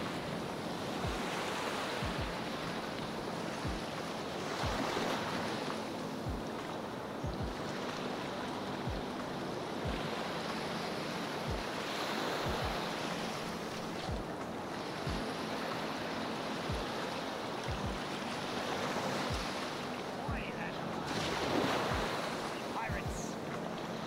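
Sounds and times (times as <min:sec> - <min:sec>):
waves washing onto beach: 0:00.0 - 0:24.0
low thumps on microphone: 0:02.0 - 0:02.4, 0:07.2 - 0:07.6, 0:12.5 - 0:12.8, 0:17.7 - 0:18.0.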